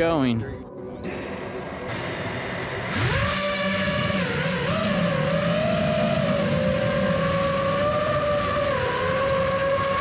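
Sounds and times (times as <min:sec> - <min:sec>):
quadcopter motors whining: 0:02.8 - 0:10.0.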